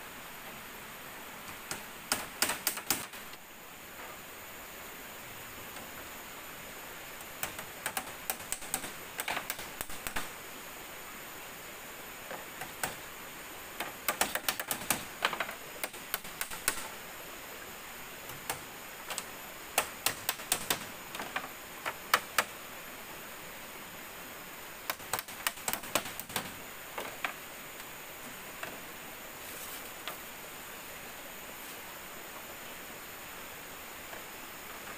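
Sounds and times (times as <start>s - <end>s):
steady high hiss: 0.0s - 34.9s
hammers tapping on bamboo: 1.5s - 3.3s, 7.4s - 10.3s, 13.8s - 16.9s, 18.3s - 22.5s, 24.8s - 27.4s.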